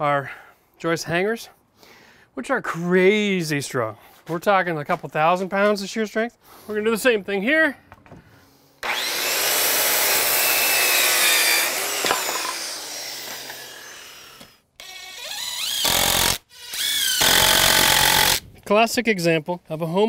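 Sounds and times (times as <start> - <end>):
impact driver whining: 8.8 - 18.4
power saw cutting wood: 8.8 - 18.4.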